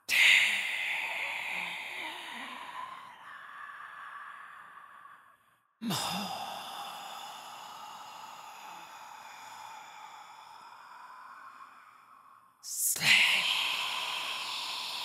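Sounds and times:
person whispering: 0:00.0 - 0:05.2, 0:05.8 - 0:15.0.

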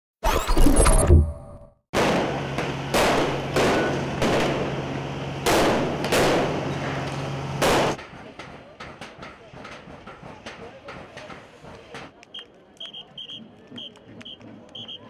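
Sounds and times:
fireworks bangs and crackle: 0:02.0 - 0:08.0.

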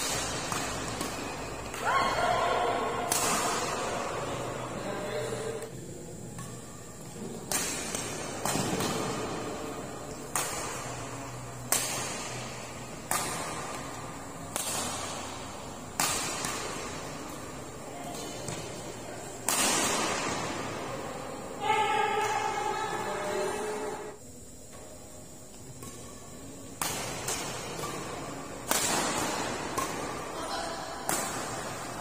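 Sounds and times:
rackets striking shuttlecock: 0:00.0 - 0:01.9, 0:02.8 - 0:04.4, 0:05.6 - 0:20.8, 0:25.6 - 0:32.0.

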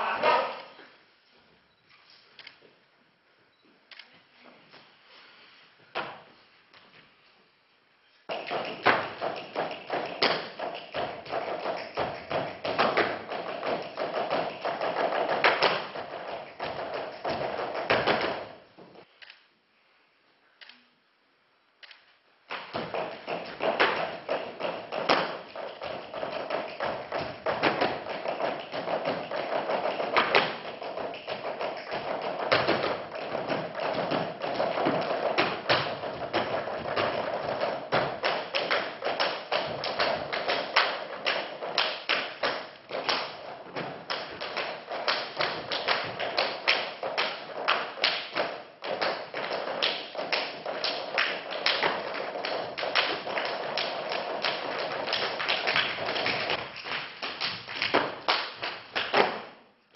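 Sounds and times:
hand slaps and foot stamps: 0:08.3 - 0:18.5, 0:22.5 - 0:59.6.

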